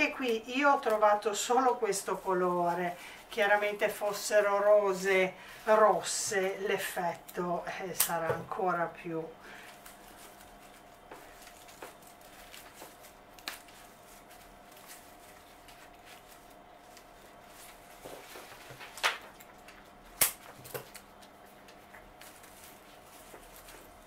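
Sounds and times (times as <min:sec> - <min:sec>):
faint steady hum: 0:00.0 - 0:24.0
greenery rustling: 0:00.0 - 0:24.0
stem snapping: 0:13.3 - 0:13.7, 0:20.2 - 0:22.3.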